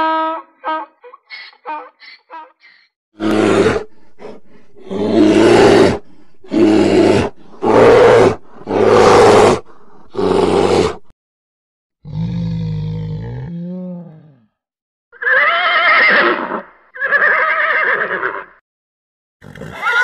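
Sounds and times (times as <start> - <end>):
bear roaring: 3.2 - 11.1, 12.0 - 14.5.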